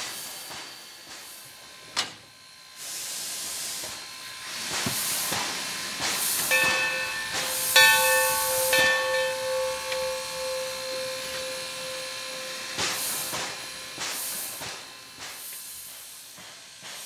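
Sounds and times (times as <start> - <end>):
locomotive venting steam: 0.0 - 17.0
sharp metal clank: 6.5 - 14.8
steam whistle: 6.5 - 15.2.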